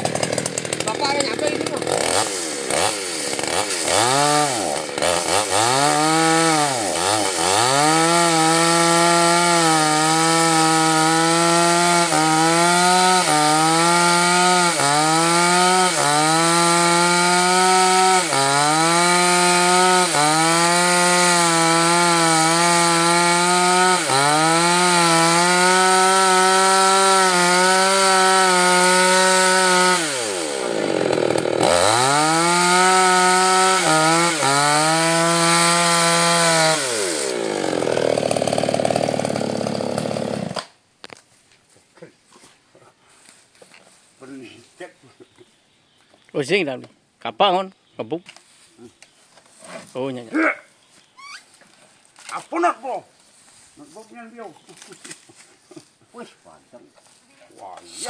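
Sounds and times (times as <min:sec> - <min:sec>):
chainsaw cutting wood: 0:00.0 - 0:41.2, 0:57.7 - 0:58.0.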